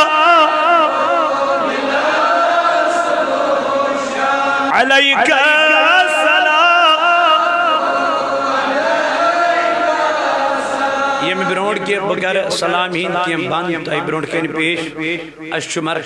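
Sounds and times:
man chanting: 0.0s - 1.4s, 4.7s - 8.2s, 11.0s - 16.0s.

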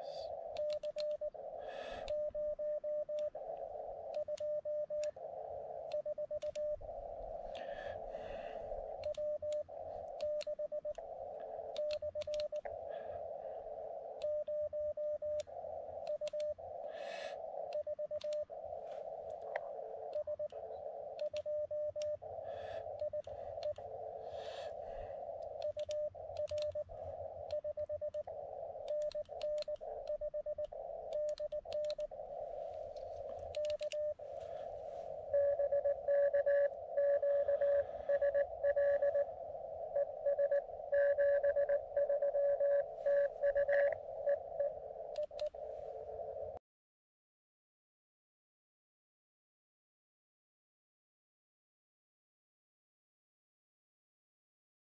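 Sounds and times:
radio hiss: 0.0s - 46.6s
morse code tone: 19.8s - 46.4s.

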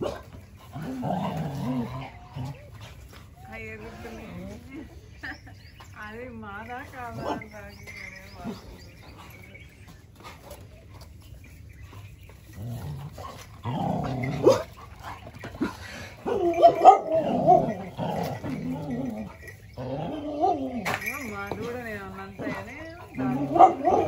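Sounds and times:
dogs growling: 0.0s - 6.0s, 7.0s - 24.0s
dogs whining: 7.2s - 24.0s.

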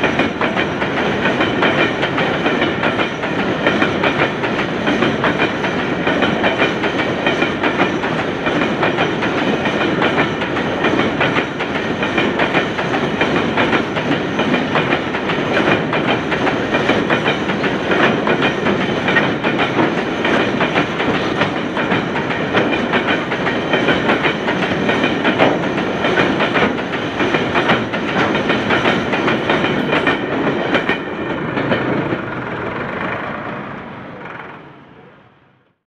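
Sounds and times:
train wheels clattering over joints: 0.0s - 33.6s.

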